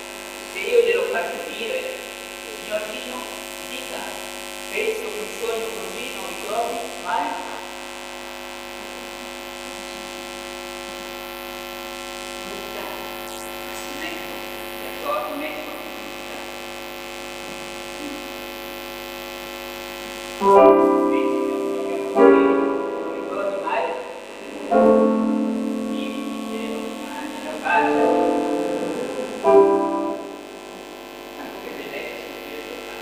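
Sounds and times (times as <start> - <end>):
electrical hum: 0.0 - 33.0
grand piano chords: 20.4 - 33.0.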